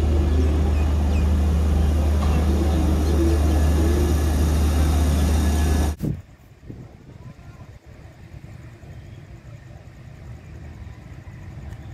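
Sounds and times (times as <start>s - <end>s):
electric train humming: 0.0s - 6.0s.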